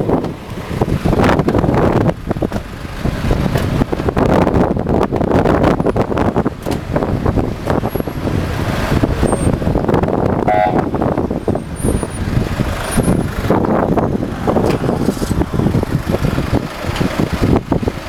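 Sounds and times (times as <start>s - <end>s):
congested traffic rumble: 0.0s - 18.0s
car horn toot: 10.4s - 11.2s.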